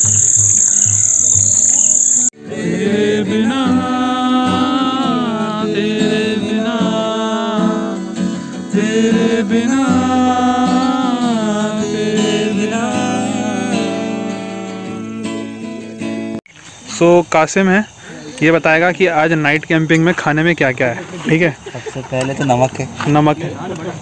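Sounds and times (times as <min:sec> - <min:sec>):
crickets chirping: 0:00.0 - 0:02.4, 0:03.3 - 0:24.0
person singing: 0:02.4 - 0:16.0
acoustic guitar: 0:02.4 - 0:16.8.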